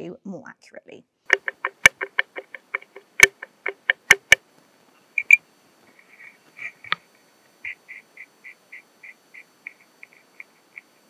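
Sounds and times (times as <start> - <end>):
ball joint clicking knocks: 1.3 - 4.4.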